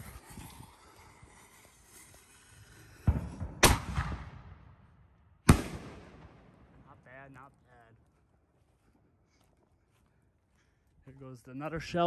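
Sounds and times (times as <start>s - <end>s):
sharp firework bangs: 2.2s - 4.8s, 5.4s - 7.0s
firework boom: 2.9s - 4.7s.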